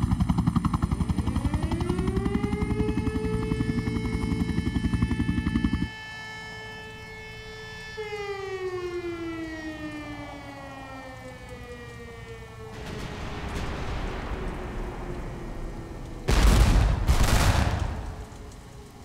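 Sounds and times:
warning siren winding down: 0:00.9 - 0:19.0
loud rush of noise: 0:12.8 - 0:18.6.

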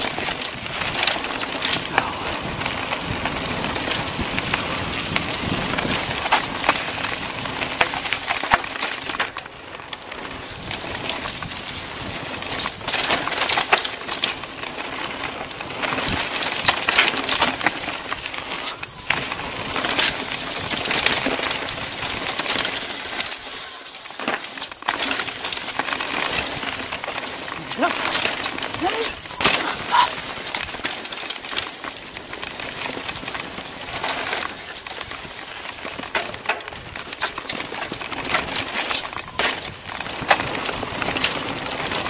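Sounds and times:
bike clicking and rattling: 0:00.0 - 0:42.0
tyre and wind rush: 0:00.4 - 0:07.7.

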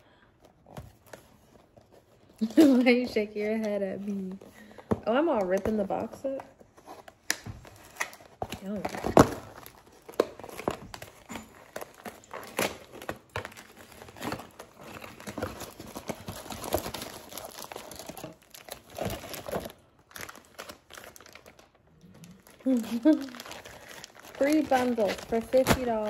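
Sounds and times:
packaging ripping and crumpling: 0:06.2 - 0:26.0
plastic bag crinkling: 0:07.6 - 0:26.0.

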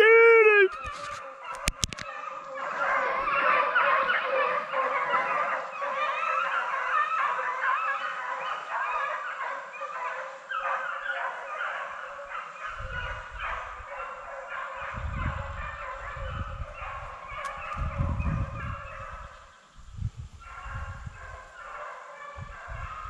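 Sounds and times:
hounds baying: 0:00.0 - 0:19.4, 0:20.4 - 0:23.0
low microphone rumbling: 0:17.8 - 0:21.4.

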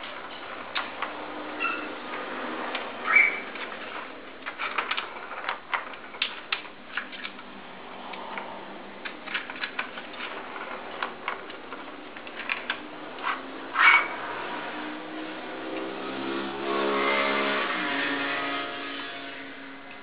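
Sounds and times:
plastic toy clicks and clatters: 0:02.1 - 0:13.4.

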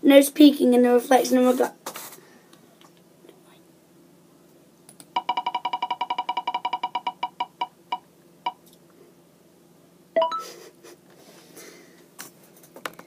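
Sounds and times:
rapid electronic beeps: 0:05.2 - 0:08.6.

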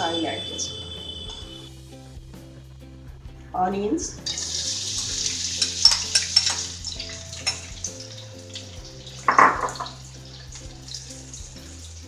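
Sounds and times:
onions sizzling in hot oil: 0:04.2 - 0:12.0.

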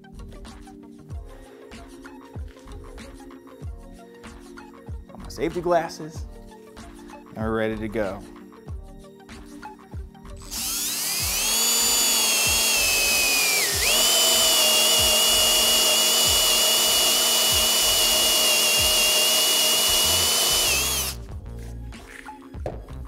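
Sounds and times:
cordless drill motor whine: 0:10.4 - 0:21.2.

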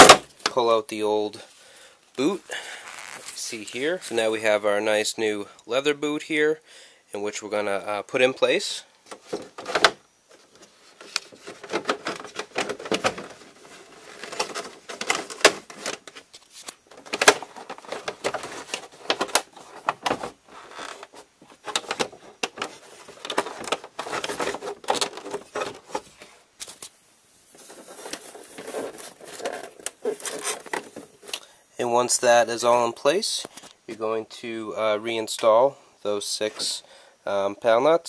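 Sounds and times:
hands rustling and tapping plastic: 0:09.1 - 0:31.5.

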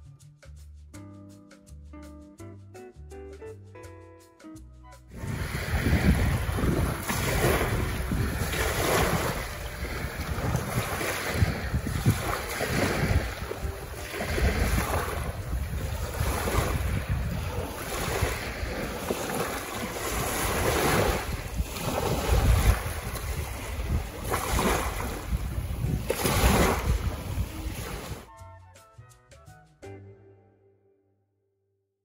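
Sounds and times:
waves breaking on sandy shore: 0:05.1 - 0:28.3
wind buffeting microphone: 0:05.1 - 0:28.3.

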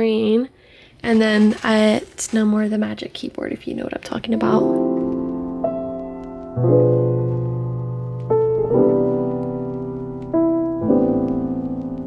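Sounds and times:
soft keyboard chords: 0:04.4 - 0:12.0.

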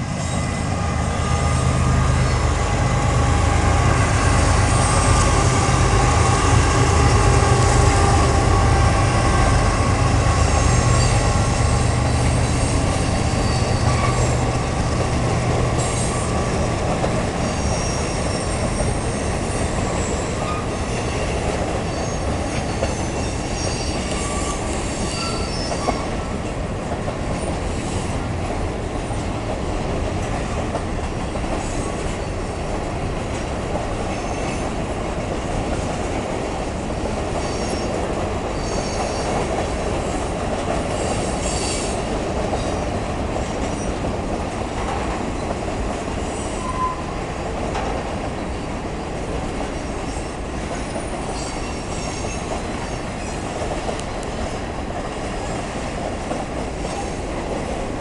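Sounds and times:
steel wheels rumbling on rail: 0:00.0 - 0:58.0
high-pitched wheel squeal: 0:09.4 - 0:14.4, 0:17.4 - 0:21.3, 0:21.9 - 0:26.1, 0:46.4 - 0:47.1, 0:51.0 - 0:53.4.

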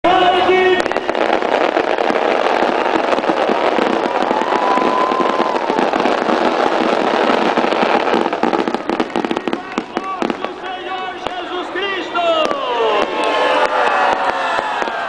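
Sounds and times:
fireworks crackling and banging: 0:00.0 - 0:15.0
firework whistle: 0:00.2 - 0:10.4.

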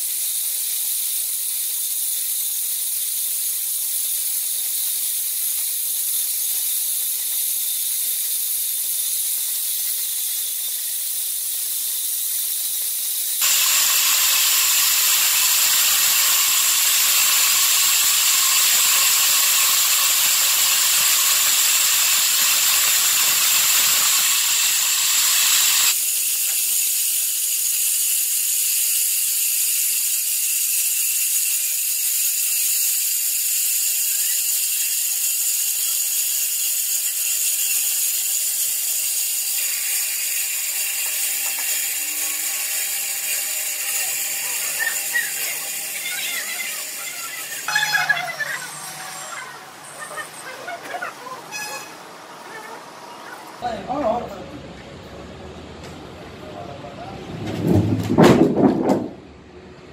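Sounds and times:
band saw blade cutting log: 0:13.4 - 0:27.0, 0:34.0 - 0:53.6.

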